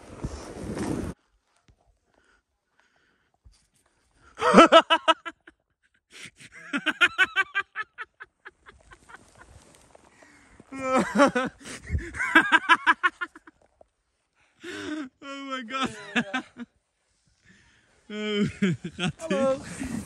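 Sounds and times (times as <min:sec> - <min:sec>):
hearty laughter: 0:04.4 - 0:09.8, 0:10.7 - 0:13.6, 0:15.8 - 0:16.7, 0:18.3 - 0:20.0.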